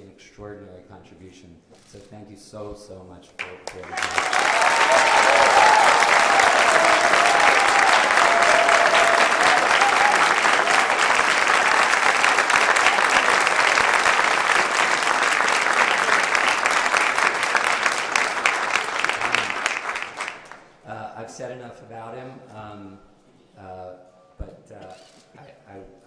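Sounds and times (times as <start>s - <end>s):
audience applauding: 3.4s - 20.7s.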